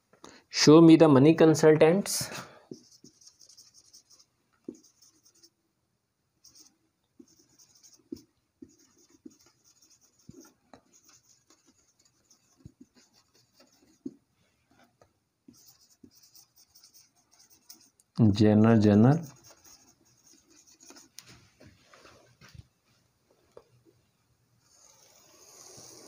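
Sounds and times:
marker squeaking on whiteboard: 2.7 - 5.5, 6.4 - 14.9, 15.5 - 18.0, 18.8 - 21.4.

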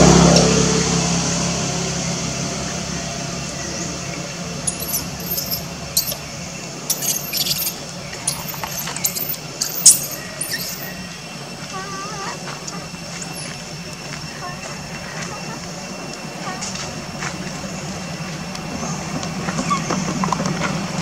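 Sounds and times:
infant monkey screaming: 6.9 - 11.0, 11.6 - 13.5.

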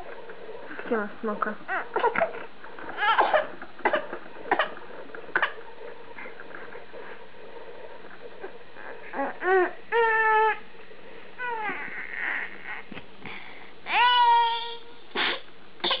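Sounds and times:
baby crying: 2.9 - 3.5, 8.8 - 10.6, 11.4 - 12.9, 13.9 - 14.9.

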